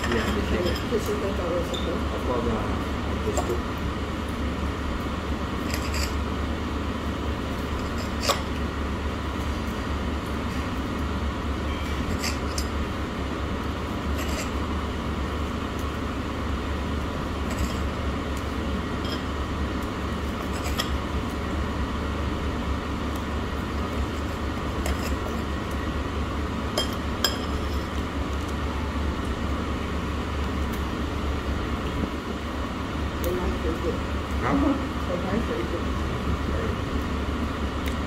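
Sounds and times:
cutlery clinking against dishes: 0.0s - 1.0s
low room hum: 0.0s - 38.0s.

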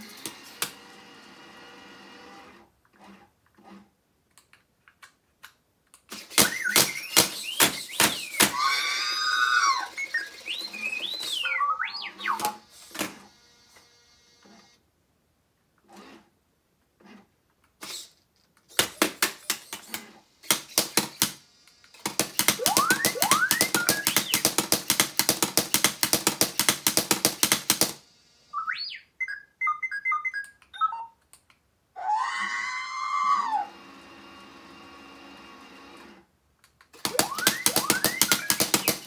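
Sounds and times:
robot beeping and whistling: 6.4s - 12.6s, 22.6s - 24.5s, 28.5s - 31.2s, 37.1s - 39.0s.

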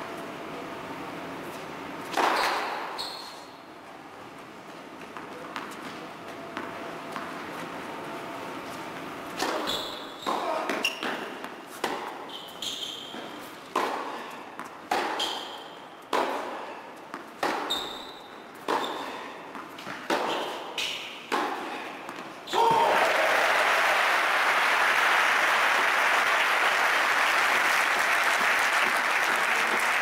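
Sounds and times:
shoes squeaking on court: 1.6s - 3.6s, 8.6s - 16.1s, 17.0s - 21.4s
racquets hitting tennis ball: 9.3s - 12.4s, 13.1s - 22.9s
tennis ball bouncing: 9.4s - 12.2s, 13.7s - 22.4s.

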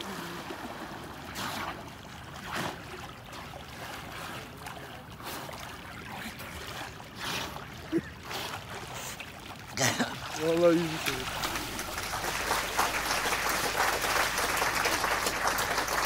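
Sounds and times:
steady water hiss: 0.0s - 2.1s, 6.3s - 16.0s
swimmer's arm strokes splashing: 0.0s - 13.8s.

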